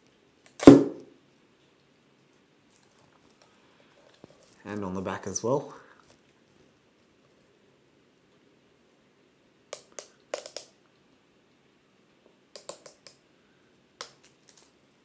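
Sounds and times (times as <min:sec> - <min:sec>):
plastic film peeling crackle: 0:14.2 - 0:14.7.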